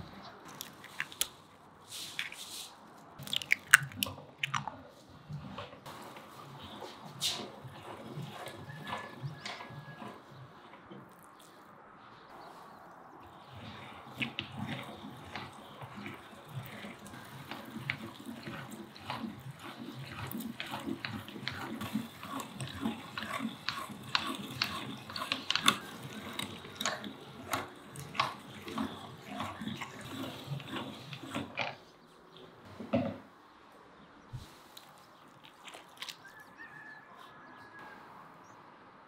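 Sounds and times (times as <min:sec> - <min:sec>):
meat grinder crunching and clicking: 0:00.4 - 0:01.4, 0:03.2 - 0:06.8, 0:07.4 - 0:10.2, 0:13.4 - 0:31.8, 0:35.3 - 0:36.9.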